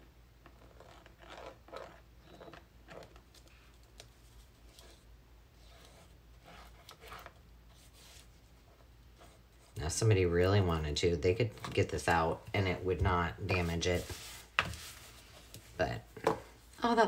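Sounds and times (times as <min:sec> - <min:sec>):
fabric and paper rustling: 0:13.4 - 0:15.8.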